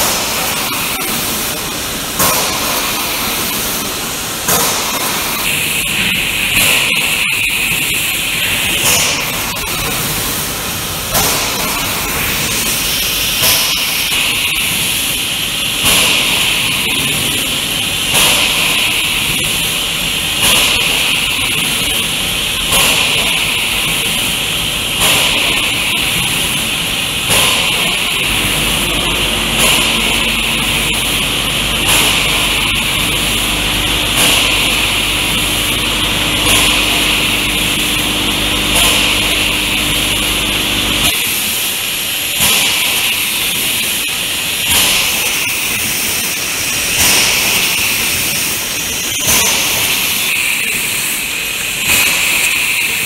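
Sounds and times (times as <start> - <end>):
low hum with steady tones: 0.0 - 53.0
packing machine hiss and strokes: 7.7 - 53.0.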